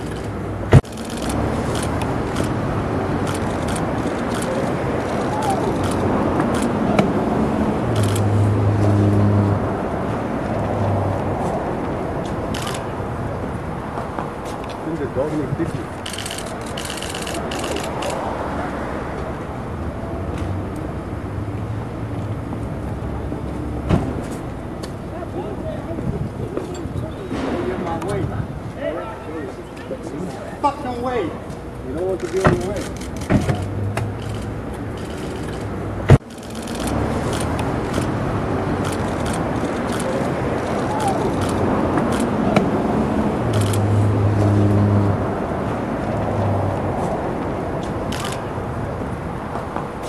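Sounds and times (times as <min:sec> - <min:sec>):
camera shutter clicks: 0:00.0 - 0:02.6, 0:16.0 - 0:18.2
vehicle engine humming: 0:00.0 - 0:26.7, 0:31.4 - 0:50.0
street traffic noise: 0:00.0 - 0:50.0.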